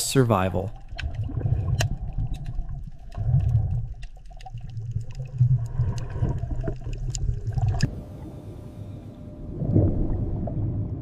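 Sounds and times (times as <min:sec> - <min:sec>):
underwater low rumble: 0:00.0 - 0:11.0
faint clicks and pops: 0:00.7 - 0:07.9.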